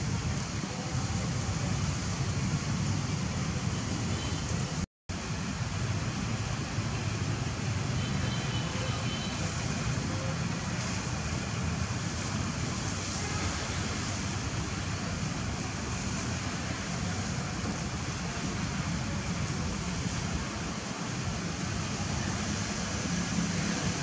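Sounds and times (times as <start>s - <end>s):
hiss: 5.2s - 24.0s.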